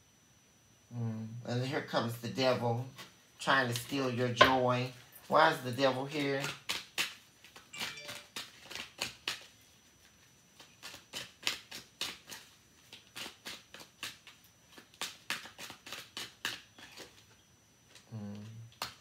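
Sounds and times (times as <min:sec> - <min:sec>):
cards being shuffled: 0:06.1 - 0:17.2.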